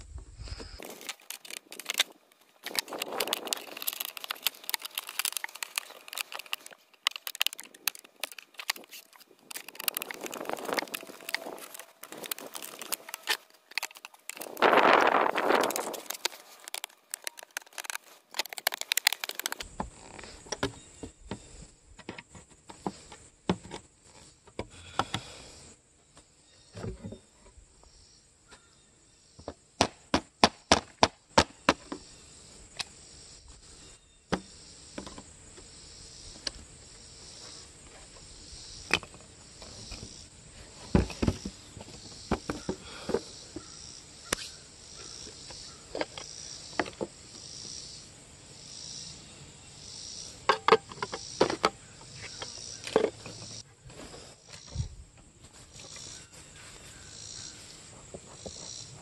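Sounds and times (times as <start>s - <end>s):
insects chirping: 0.1s - 59.0s
hand tools clicking on wood: 0.8s - 19.7s.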